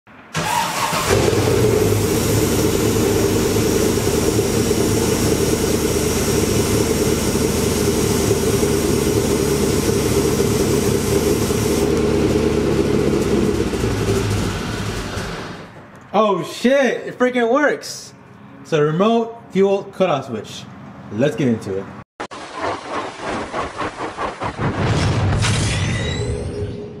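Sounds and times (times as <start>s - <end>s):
car engine starting and idling: 0.3s - 16.0s.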